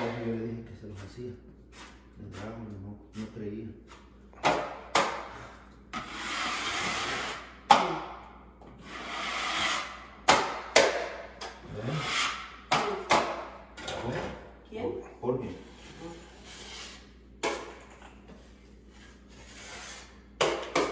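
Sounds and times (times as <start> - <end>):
drywall knife scraping: 5.9 - 7.5, 8.8 - 10.0, 11.7 - 12.5, 15.6 - 17.7, 18.4 - 20.2.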